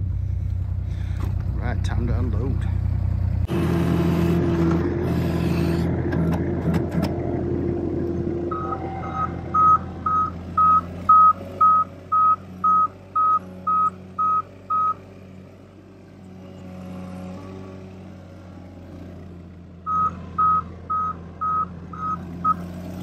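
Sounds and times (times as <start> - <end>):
loader engine running: 0.0 - 23.0
reverse alarm beeping: 8.5 - 15.0, 19.9 - 22.6.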